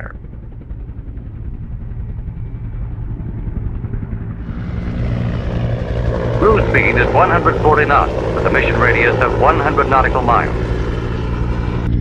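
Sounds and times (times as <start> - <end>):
helicopter rotor and engine drone: 0.0 - 12.0.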